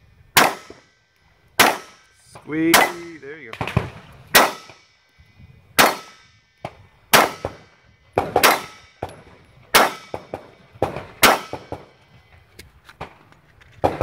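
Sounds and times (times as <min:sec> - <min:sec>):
pistol shots: 0:00.4 - 0:00.8, 0:01.6 - 0:02.1, 0:02.7 - 0:04.8, 0:05.8 - 0:12.0.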